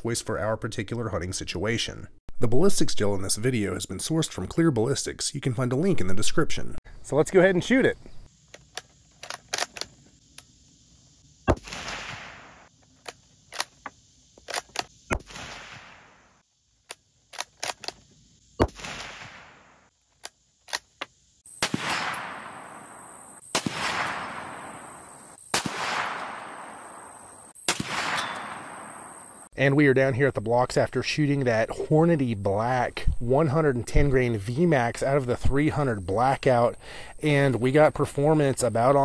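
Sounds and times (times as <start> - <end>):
rifle bolt clicks: 8.5 - 10.5
rifle shots with long echo: 11.5 - 12.7, 15.1 - 16.3, 18.6 - 19.8, 21.6 - 29.2.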